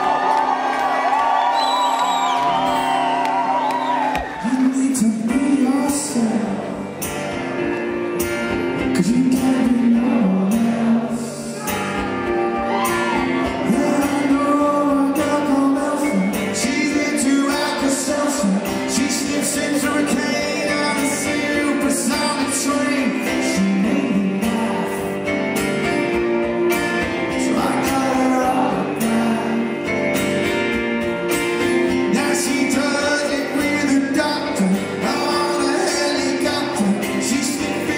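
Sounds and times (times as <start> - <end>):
man singing: 4.4 - 7.0, 8.8 - 12.5, 13.3 - 25.4, 27.1 - 30.2, 31.6 - 37.9
strummed acoustic guitar: 4.7 - 37.9.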